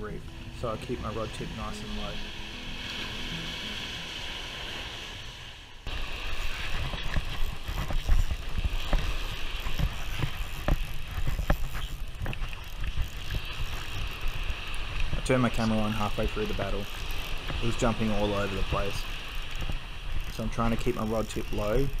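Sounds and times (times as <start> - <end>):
surf hissing on shore: 0.0 - 10.8, 13.3 - 22.0
fishing reel clicking: 6.1 - 22.0.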